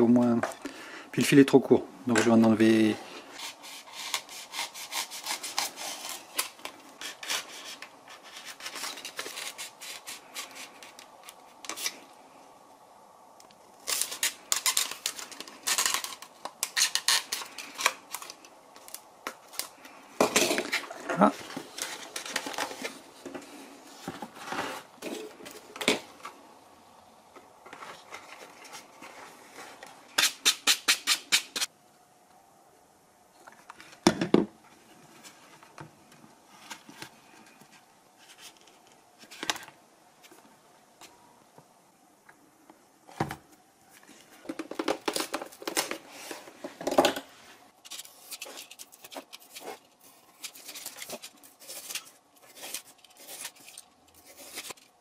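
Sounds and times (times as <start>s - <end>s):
knife cutting and scraping foam: 3.4s - 10.9s, 48.4s - 54.9s.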